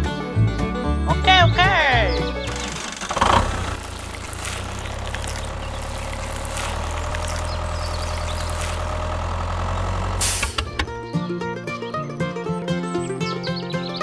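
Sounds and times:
tractor engine idling: 2.0 - 11.2.

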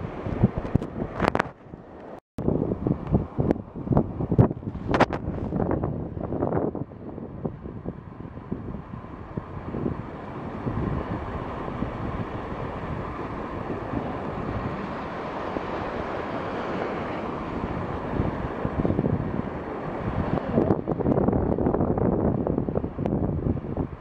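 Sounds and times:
rushing water: 0.0 - 24.0
wind buffeting microphone: 0.0 - 24.0.

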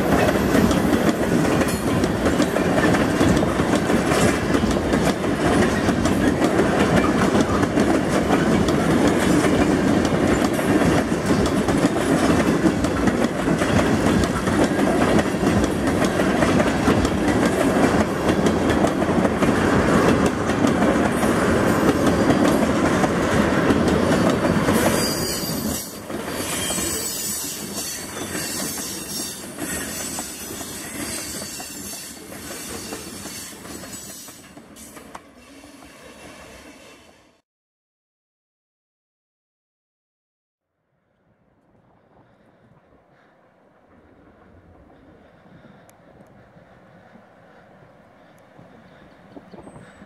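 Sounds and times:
clickety-clack over rail joints: 0.0 - 35.4
train wheels rumbling on rail: 0.0 - 37.2, 41.8 - 50.0
high-pitched wheel squeal: 24.9 - 34.3.

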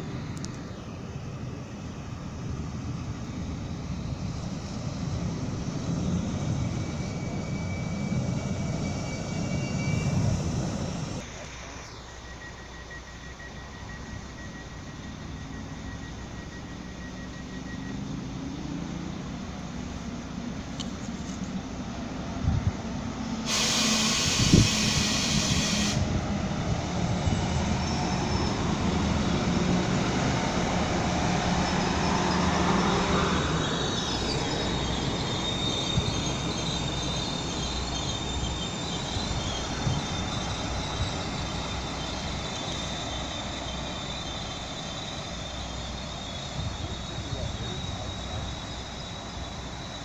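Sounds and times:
train engine and wheels rumbling: 0.0 - 50.0
train whine: 0.0 - 50.0
high steady tone: 6.3 - 20.1
loud hiss: 23.4 - 26.2.

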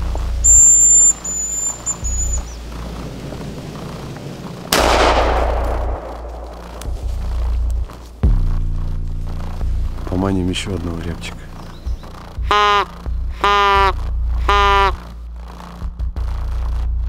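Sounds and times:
high thin whistle call: 0.1 - 2.6, 12.5 - 15.0
shotgun shot: 4.7 - 7.6.

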